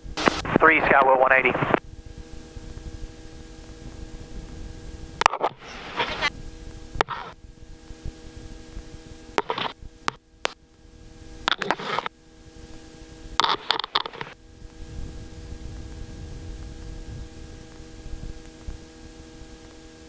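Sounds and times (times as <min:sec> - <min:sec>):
radio static bursts and clicks: 0:00.0 - 0:19.8
headset intercom electrical hum: 0:00.0 - 0:20.0.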